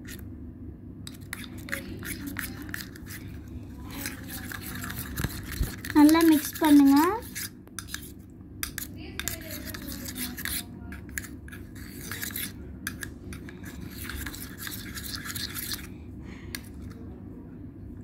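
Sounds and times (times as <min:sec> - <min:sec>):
metal spoon stirring thick slime: 0:00.0 - 0:00.2, 0:01.1 - 0:17.0.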